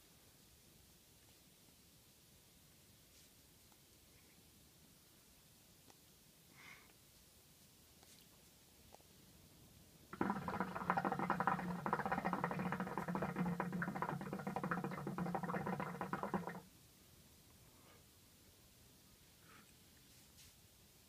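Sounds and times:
hookah water bubbling: 10.1 - 16.7.

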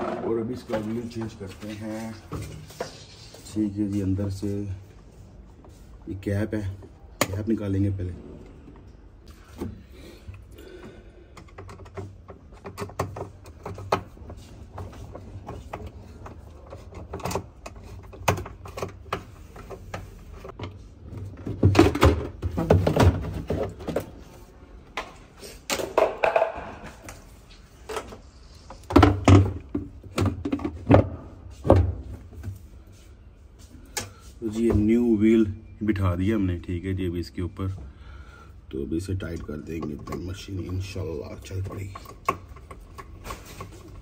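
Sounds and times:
screwdriver and plastic parts knocking: 11.4 - 20.8.

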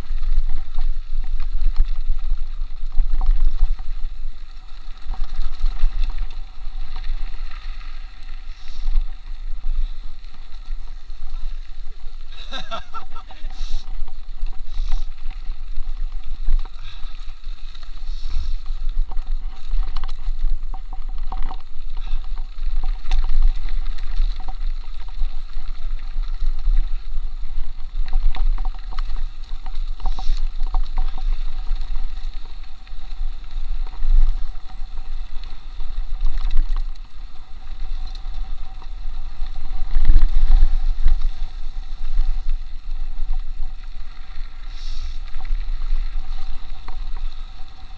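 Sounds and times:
wind rumbling on microphone: 0.0 - 47.9.

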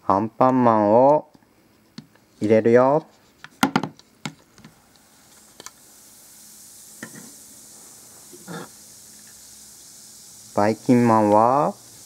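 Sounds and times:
bath bomb fizzing: 5.1 - 12.0.

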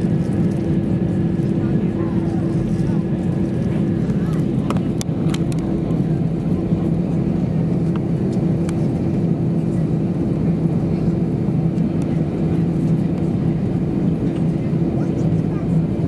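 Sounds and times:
jet engines humming in cabin: 0.0 - 16.0.

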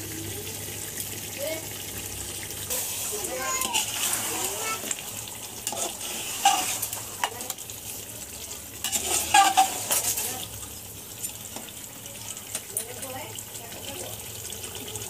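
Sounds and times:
food sizzling: 0.0 - 15.0
spoon scraping metal pot: 5.6 - 7.5, 8.8 - 10.4.

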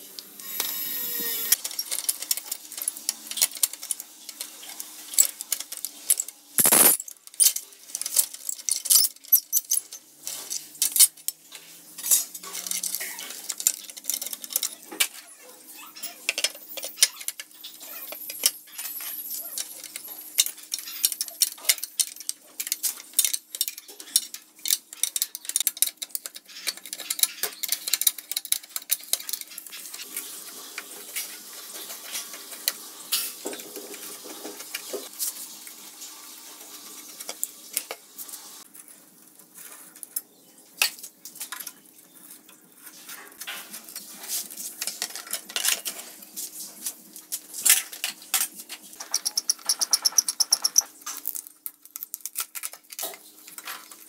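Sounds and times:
metal clinks of tools and parts: 1.5 - 11.4, 12.0 - 15.3.

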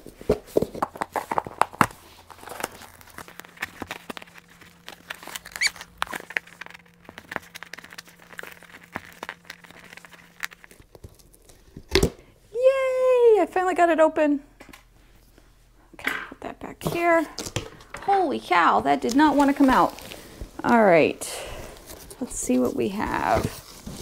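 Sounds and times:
cardboard crinkling and tearing: 0.6 - 11.9, 19.1 - 20.4, 21.8 - 24.0.

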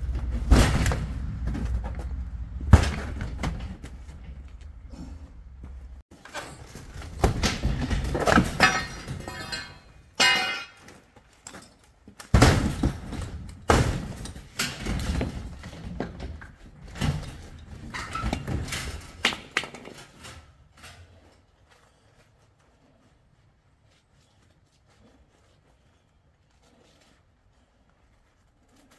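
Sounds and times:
sharp ringing metal clang: 9.6 - 10.8.

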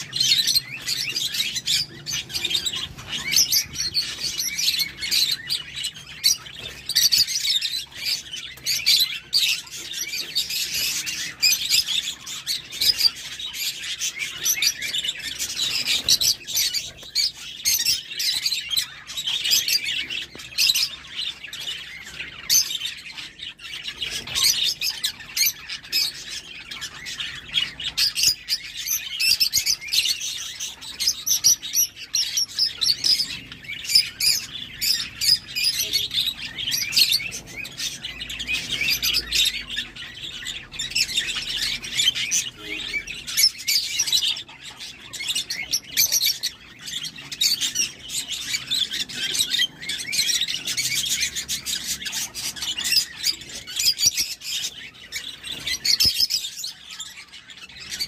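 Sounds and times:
lovebirds chirping: 0.0 - 58.0.

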